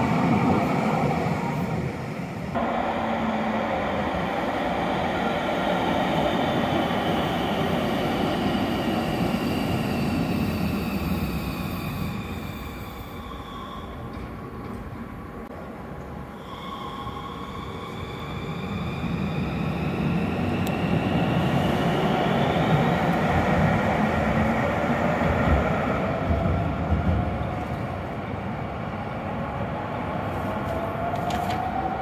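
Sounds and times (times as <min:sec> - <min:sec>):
tram motor whine: 0:02.5 - 0:15.1.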